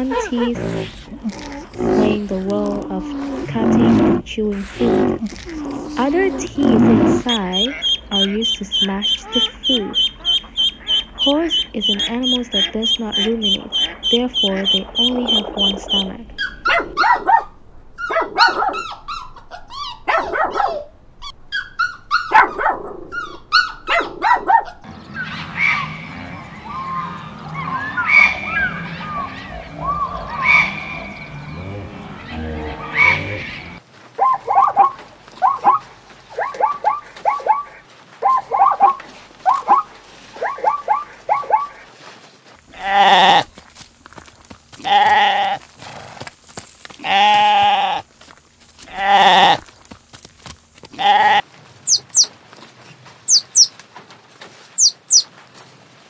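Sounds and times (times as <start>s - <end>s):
small dogs yipping and whining: 16.4s - 26.0s, 26.6s - 31.2s, 34.2s - 41.8s
animal calls in short runs: 32.1s - 53.8s, 54.6s - 55.4s
sheep bleating: 42.7s - 43.6s, 44.7s - 45.8s, 46.9s - 48.1s, 48.8s - 49.7s, 50.8s - 51.5s.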